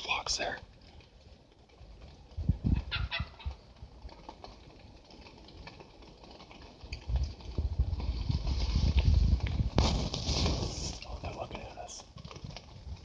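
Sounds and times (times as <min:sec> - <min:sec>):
wild turkeys calling: 0:02.8 - 0:03.6.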